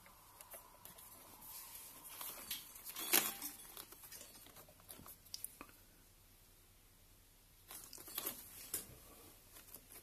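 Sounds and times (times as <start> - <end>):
plastic wire loom rustling: 0.0 - 5.3.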